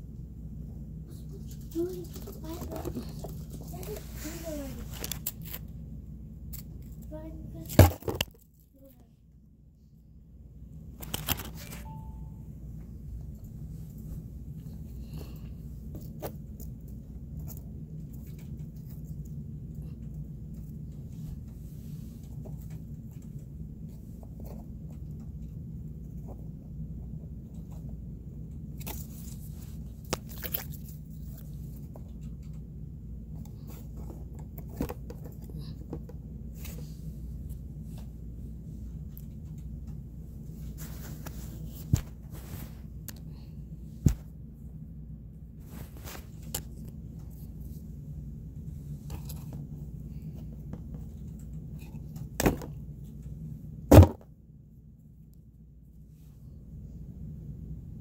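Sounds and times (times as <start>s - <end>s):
steady low hum: 0.0s - 58.0s
heavy thump: 53.9s - 54.3s.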